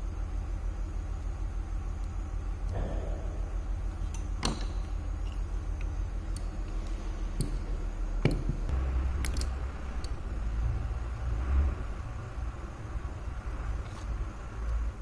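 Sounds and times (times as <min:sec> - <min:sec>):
steady low rumble: 0:00.0 - 0:15.0
metallic clicks and knocks: 0:04.0 - 0:06.6, 0:08.2 - 0:10.2.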